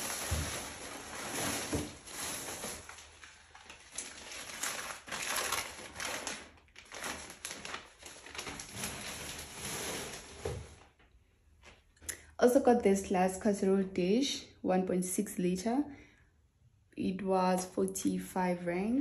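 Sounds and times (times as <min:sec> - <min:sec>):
plastic bag rustling: 0:00.0 - 0:11.0.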